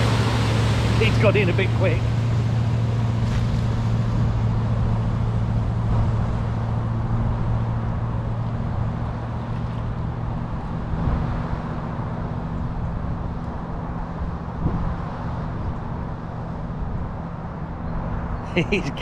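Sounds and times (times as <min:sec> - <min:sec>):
water rushing and splashing: 0:00.0 - 0:06.7
engine hum: 0:00.0 - 0:19.0.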